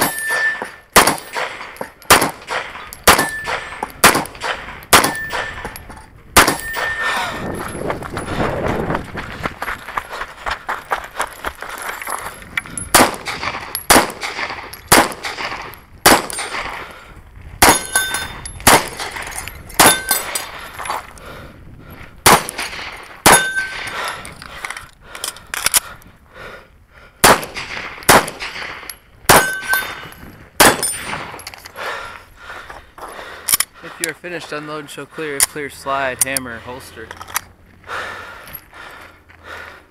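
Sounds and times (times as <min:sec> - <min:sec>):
gunshots: 0:00.0 - 0:05.8, 0:06.4 - 0:07.1, 0:12.9 - 0:16.9, 0:17.6 - 0:18.0, 0:18.6 - 0:20.4, 0:22.2 - 0:23.9, 0:27.2 - 0:30.0, 0:30.6 - 0:31.4
metallic ring of steel target: 0:00.0 - 0:07.8, 0:17.6 - 0:20.5, 0:22.6 - 0:23.9, 0:28.9 - 0:31.5.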